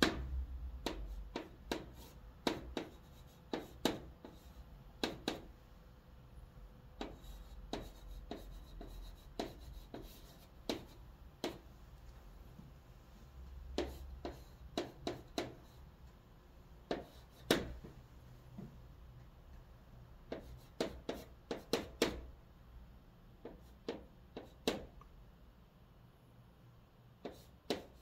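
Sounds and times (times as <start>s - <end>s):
chalk writing on chalkboard: 0.0s - 5.5s, 7.0s - 11.7s, 13.7s - 15.9s, 16.9s - 17.9s, 20.3s - 22.3s, 23.4s - 24.9s, 27.2s - 28.0s.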